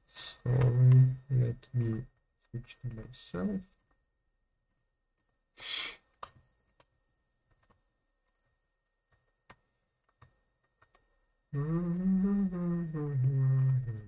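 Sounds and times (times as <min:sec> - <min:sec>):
computer clicks: 0:01.7 - 0:02.0, 0:07.5 - 0:11.1
person breathing out: 0:05.6 - 0:06.0.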